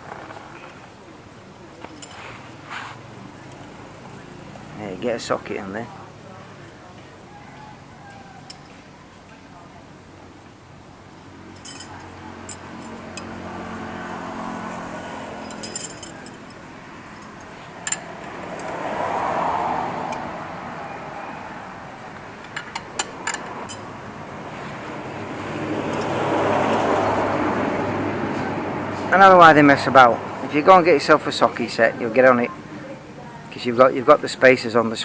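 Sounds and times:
road traffic passing: 0.0 - 35.0
hand tools clinking on metal: 1.8 - 3.8, 7.5 - 9.5, 11.4 - 19.0, 22.4 - 24.0, 25.8 - 27.0.

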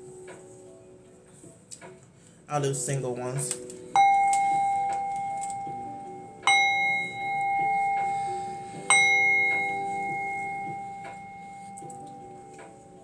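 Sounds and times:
singing bowl ringing: 3.9 - 13.0.

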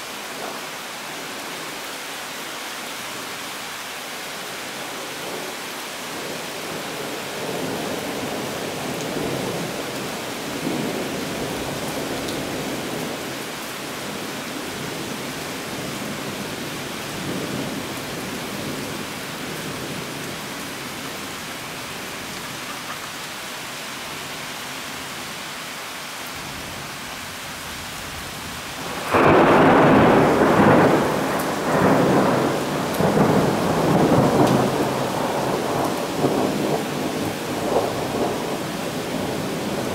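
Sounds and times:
heavy rain hissing: 0.0 - 39.9
loud thunderclap: 28.8 - 39.9
thunder rumbling: 28.8 - 39.9.

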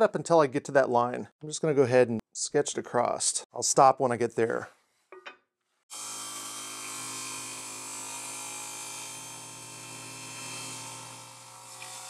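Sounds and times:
table saw cutting plywood: 5.9 - 12.0.

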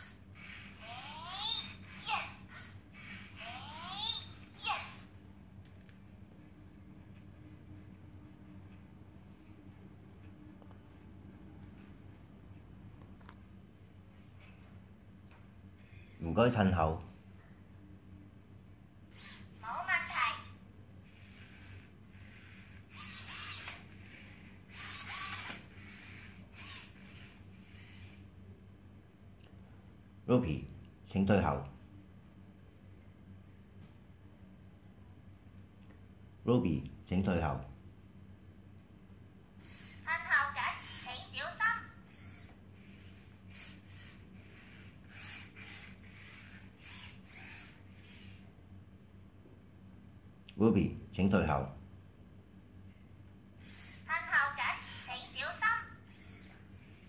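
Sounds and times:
robot servo motors whirring: 0.0 - 5.1, 15.8 - 16.2, 19.1 - 20.3, 21.0 - 28.3, 39.6 - 48.5, 53.6 - 57.0.

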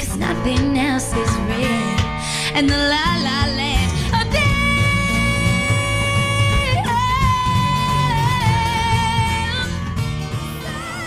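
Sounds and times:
acoustic guitar: 0.0 - 11.0
woman singing with vibrato: 0.0 - 11.0
another singer's wavering voice: 10.5 - 11.0.

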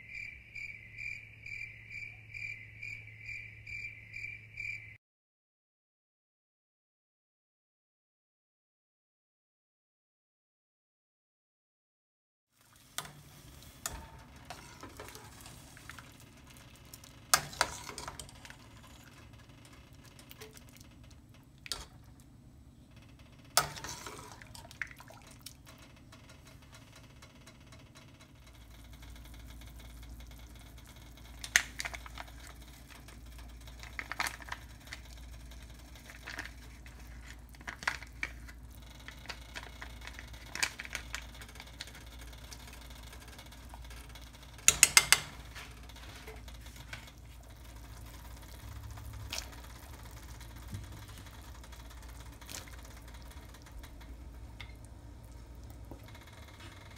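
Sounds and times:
pot and utensils clinking: 44.7 - 46.5.

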